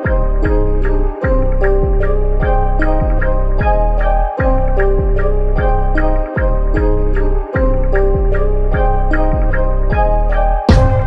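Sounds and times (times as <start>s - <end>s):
music with quick beat: 7.6s - 11.0s.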